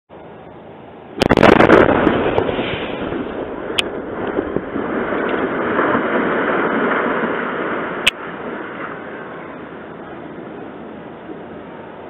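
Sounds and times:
loud roar after explosion: 1.2 - 9.6
sharp crack: 1.2 - 10.0.

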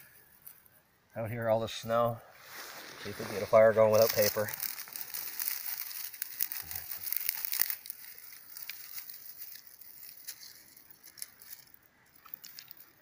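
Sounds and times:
dry twigs snapping: 3.8 - 13.0.

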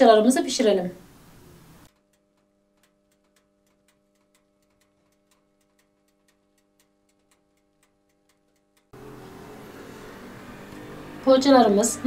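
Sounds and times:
faint even ticking: 1.8 - 9.1.

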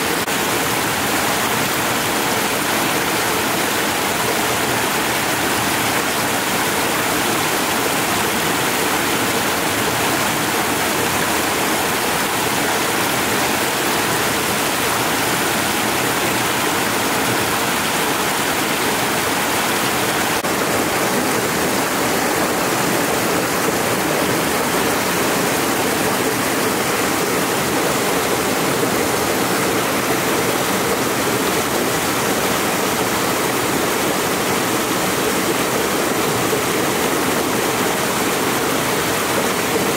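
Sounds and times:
water gushing from spout: 0.0 - 39.9.

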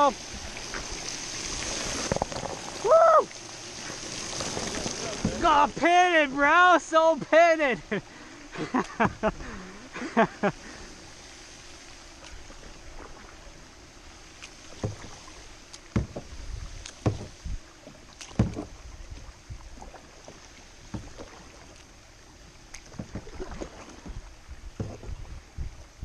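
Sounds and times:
low wash of water: 0.0 - 26.0
paddle splashes: 0.0 - 26.0
sharp knocks: 15.9 - 16.3, 17.0 - 17.4, 18.3 - 18.7.

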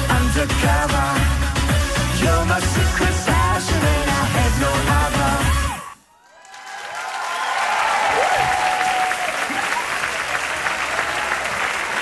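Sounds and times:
pop music: 0.0 - 6.0
studio audience applause: 6.1 - 12.0.

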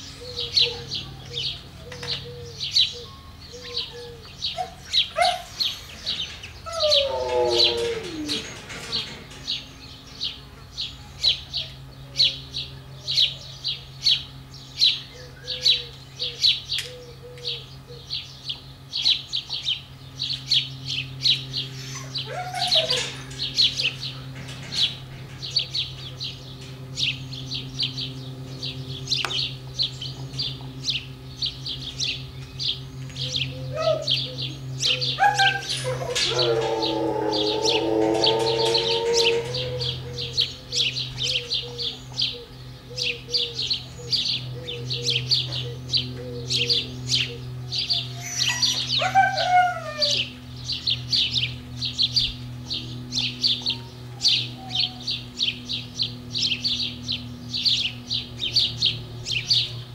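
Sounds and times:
low steady hum: 0.0 - 59.9
husky whining: 4.5 - 9.4, 21.8 - 25.8, 33.6 - 41.0, 48.0 - 50.3.

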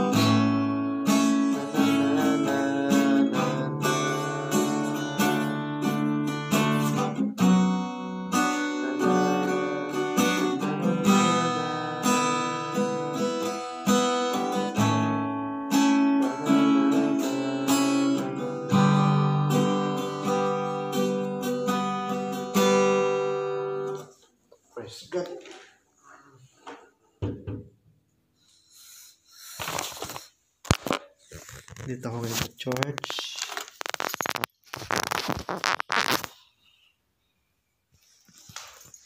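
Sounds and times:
acoustic guitar strumming chords: 0.0 - 24.1.

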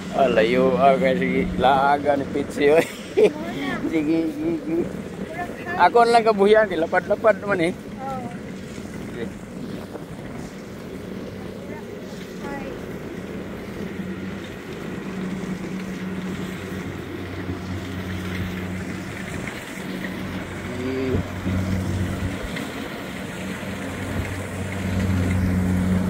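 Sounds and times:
engine humming: 0.0 - 26.0
wind noise on microphone: 7.8 - 16.8.

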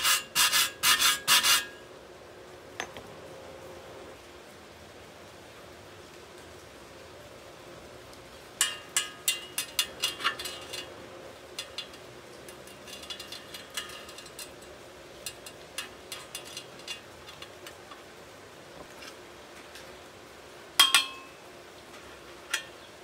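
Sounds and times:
metal rod tapping on steel: 8.6 - 10.9, 11.5 - 17.8, 20.8 - 21.4.

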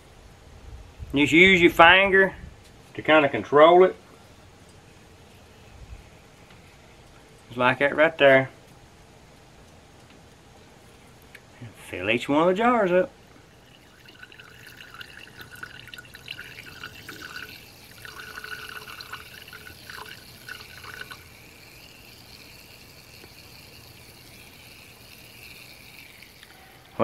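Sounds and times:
liquid trickling and dripping: 13.3 - 27.0.

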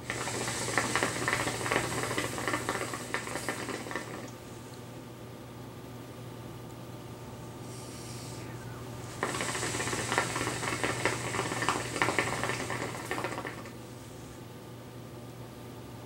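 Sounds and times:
hookah water bubbling: 0.0 - 4.6, 7.6 - 13.8.

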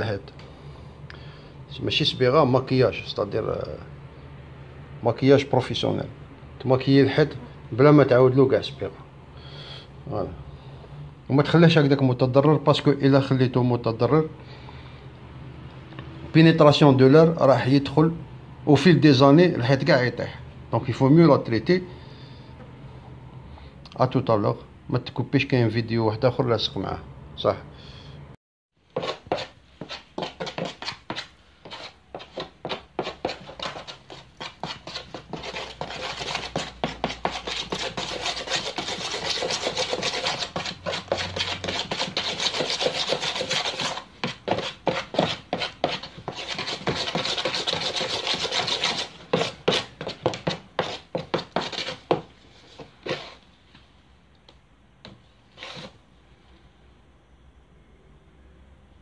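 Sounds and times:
putty knife scraping a plastic tub: 28.9 - 53.4, 55.5 - 56.0.

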